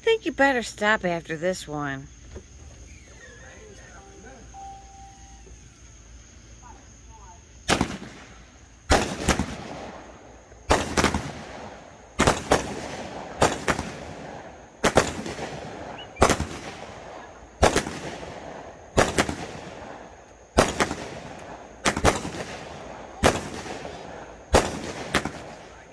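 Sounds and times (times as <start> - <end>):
rumble after fireworks bangs: 5.4 - 25.9
fireworks bangs: 7.2 - 25.9.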